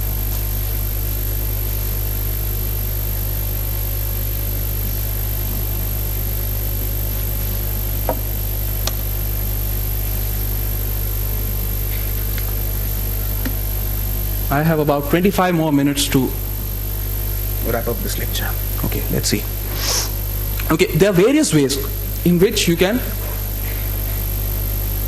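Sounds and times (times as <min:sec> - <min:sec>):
electrical hum and hiss: 0:00.0 - 0:25.0.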